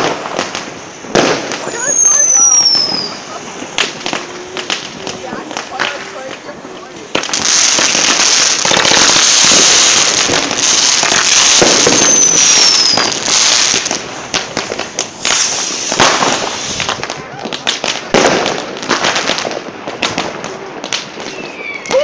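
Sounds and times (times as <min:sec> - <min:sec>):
firework cracks and bangs: 0:00.0 - 0:22.0
fireworks crackling spray: 0:00.0 - 0:22.0
falling firework whistle: 0:01.1 - 0:04.8, 0:07.4 - 0:14.0, 0:15.2 - 0:18.2, 0:21.2 - 0:22.0.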